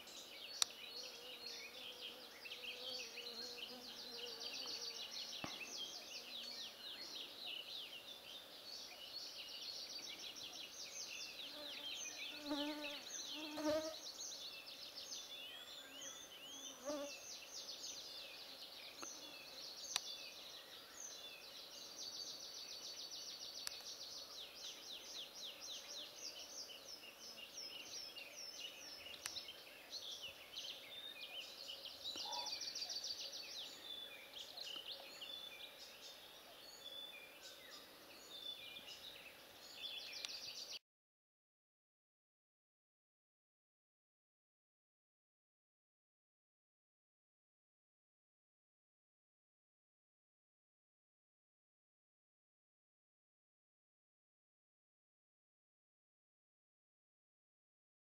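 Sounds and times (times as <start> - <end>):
songbirds trilling and chirping: 0.0 - 40.8.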